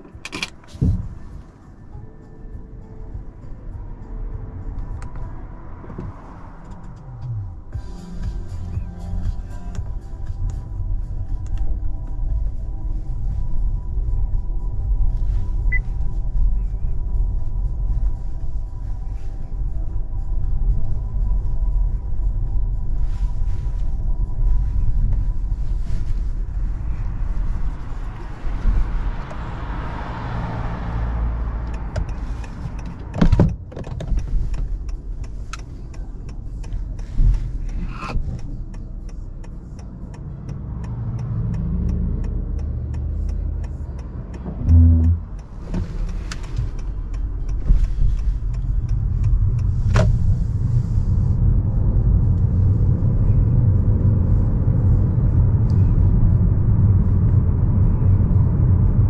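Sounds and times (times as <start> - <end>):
tyre and road rumble: 23.3 - 59.0.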